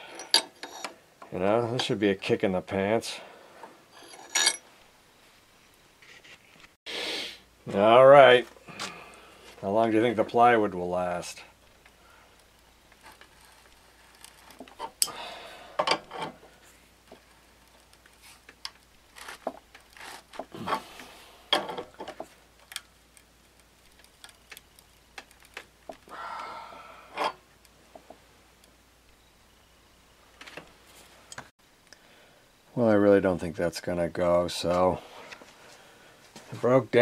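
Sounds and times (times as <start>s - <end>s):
strained noises: 11.6s - 27.4s.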